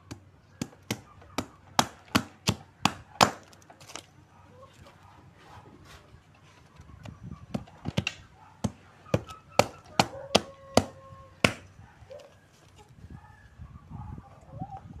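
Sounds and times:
knife chopping wood: 0.1s - 4.0s, 7.5s - 11.7s.

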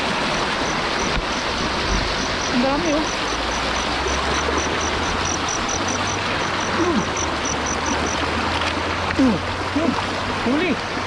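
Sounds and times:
river current rushing: 0.0s - 11.0s.

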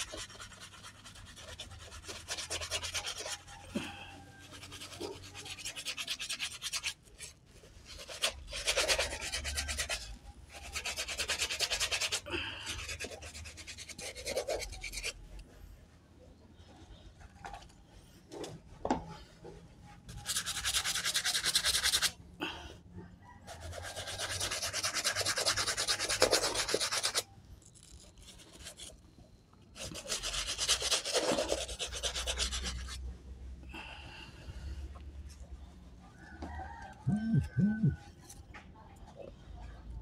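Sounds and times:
scrub brush scrubbing a shoe: 0.0s - 3.7s, 4.3s - 15.2s, 20.1s - 22.2s, 23.5s - 29.0s, 29.7s - 33.1s.

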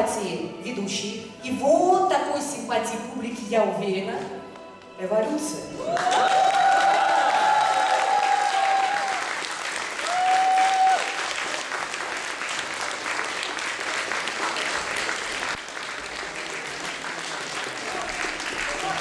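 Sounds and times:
audience applauding: 5.8s - 19.0s.

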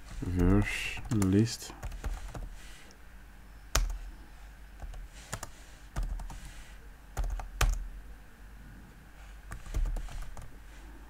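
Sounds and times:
computer keyboard typing: 0.0s - 2.6s, 3.7s - 4.1s, 4.8s - 6.6s, 7.2s - 7.9s, 9.5s - 10.5s.

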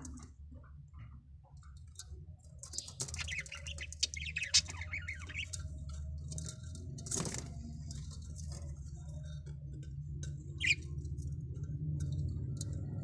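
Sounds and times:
low steady hum: 0.0s - 13.0s
budgerigars chirping raspily: 2.8s - 5.6s, 10.6s - 10.9s.

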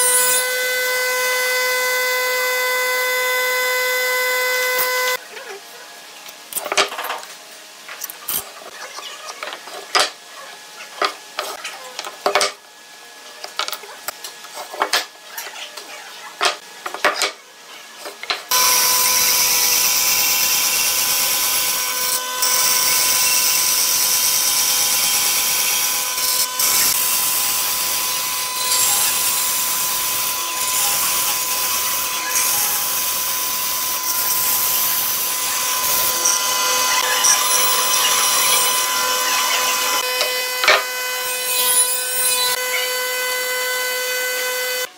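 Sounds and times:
band saw cutting wood: 0.0s - 5.2s, 18.5s - 44.9s.

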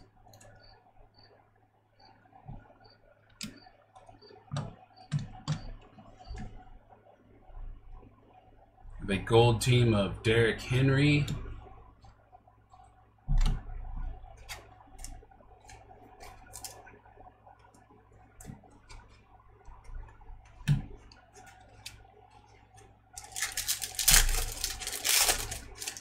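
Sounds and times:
trading cards being handled: 14.4s - 16.8s, 21.1s - 26.0s
foil wrapper crinkling: 16.2s - 16.8s, 23.2s - 26.0s.

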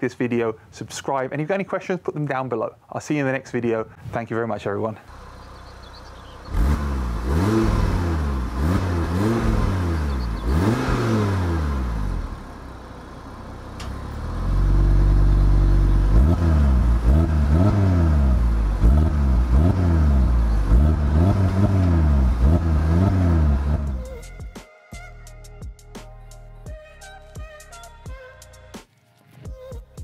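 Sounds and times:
car engine revving: 5.1s - 24.1s.

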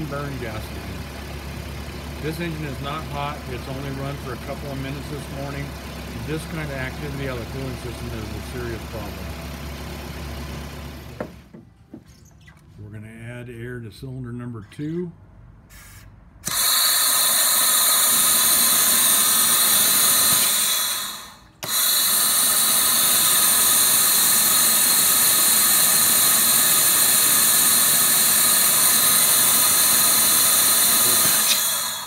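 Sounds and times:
compressed air hissing through hose: 15.7s - 32.0s.

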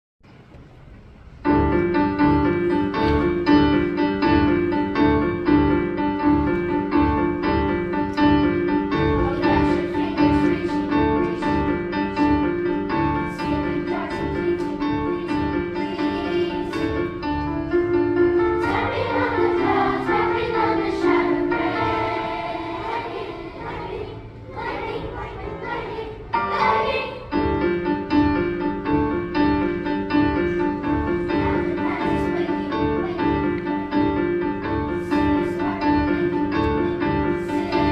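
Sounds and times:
piano playing repeated chords: 1.4s - 37.9s
children's chorus singing: 6.3s - 17.5s, 18.3s - 27.9s, 30.5s - 37.9s.

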